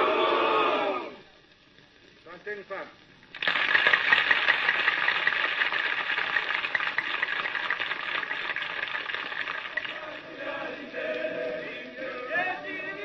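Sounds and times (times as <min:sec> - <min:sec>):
crowd applauding: 0:03.4 - 0:11.8.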